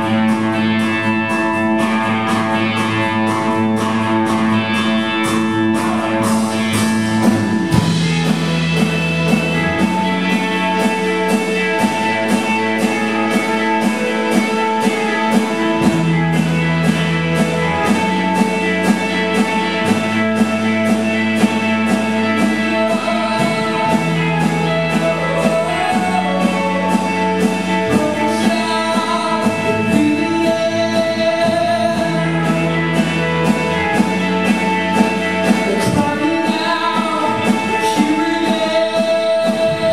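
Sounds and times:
bass guitar: 0:00.0 - 0:39.9
drum kit beat: 0:00.0 - 0:39.9
electric guitars: 0:00.0 - 0:39.9
man singing lead vocal: 0:22.3 - 0:33.6, 0:35.5 - 0:39.9.

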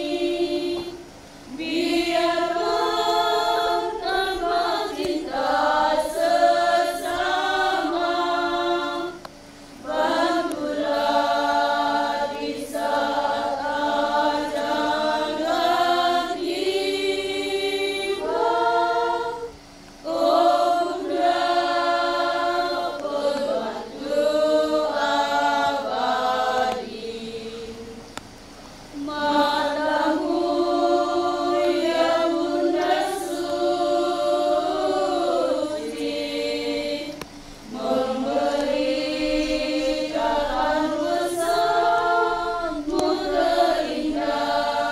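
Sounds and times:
women's choir singing unaccompanied: 0:00.0 - 0:44.9.

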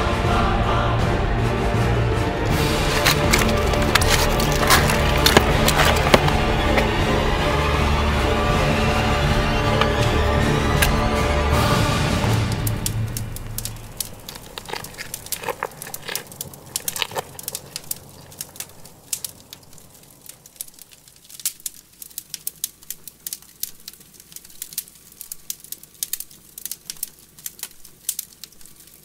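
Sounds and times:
music: 0:00.0 - 0:15.4
flames crackling and popping: 0:02.4 - 0:29.0.

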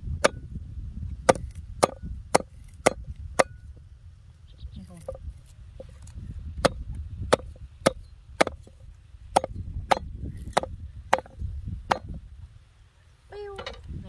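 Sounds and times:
cleaver chopping on wooden board: 0:01.2 - 0:03.6, 0:06.6 - 0:12.2.

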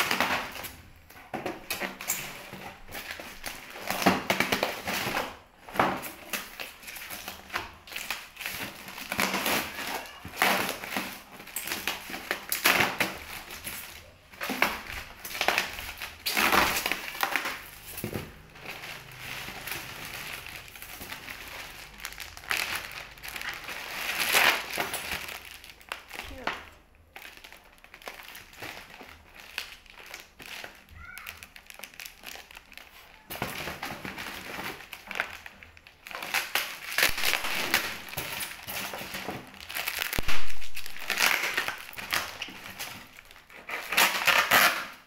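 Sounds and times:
foam box crunching and scraping: 0:01.4 - 0:26.4, 0:31.8 - 0:45.0.

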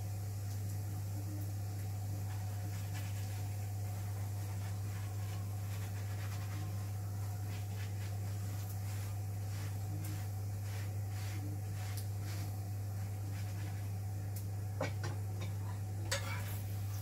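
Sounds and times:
low electrical hum: 0:00.0 - 0:17.0
light scraping and tapping: 0:14.8 - 0:16.6.

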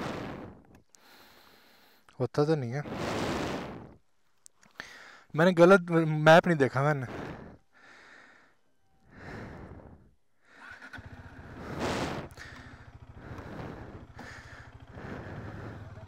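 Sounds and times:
motorcycle engine running: 0:10.6 - 0:16.0.

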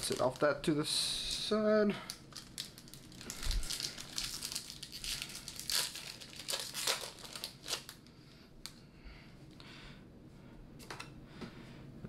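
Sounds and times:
foil wrapper tearing and crinkling: 0:00.0 - 0:00.5, 0:02.1 - 0:08.1.

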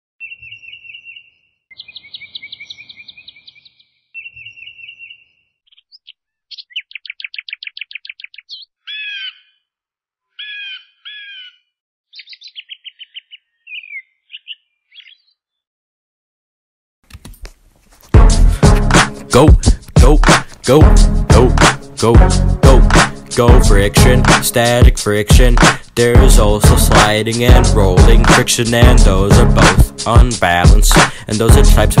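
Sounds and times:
bird trills and chirps: 0:00.2 - 0:15.6.

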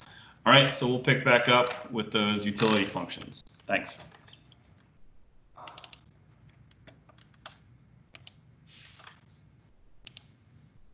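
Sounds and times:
keyboard typing: 0:05.5 - 0:08.4, 0:10.0 - 0:10.3
soft rustle: 0:08.6 - 0:09.6.

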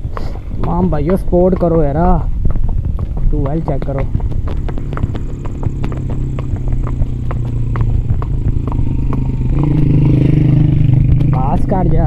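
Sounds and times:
horse hooves clopping on pavement: 0:00.0 - 0:12.0
vehicle engine hum: 0:03.4 - 0:12.0.

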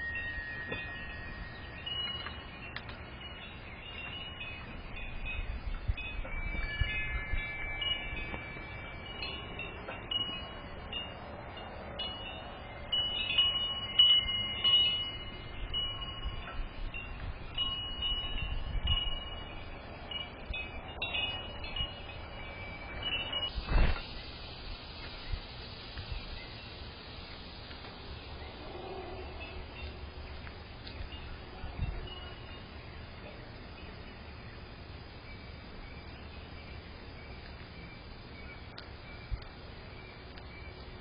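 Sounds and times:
metal wind chime ringing: 0:00.0 - 0:24.3, 0:28.2 - 0:34.5.

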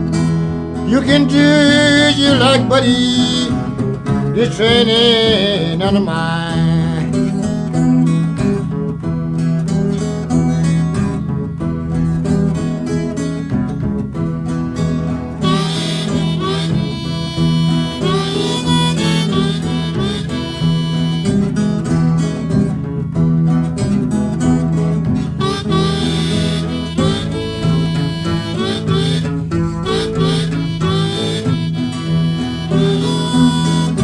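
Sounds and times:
guitar accompaniment: 0:00.0 - 0:34.0
blues harmonica playing: 0:00.8 - 0:07.4, 0:15.4 - 0:22.2, 0:25.2 - 0:34.0.

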